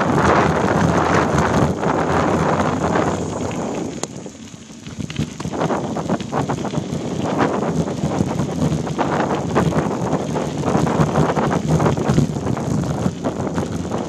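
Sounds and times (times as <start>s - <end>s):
bike rattling over bumps: 0.0s - 14.0s
bike tyres on dirt: 0.0s - 14.0s
wind buffeting microphone: 0.0s - 14.0s.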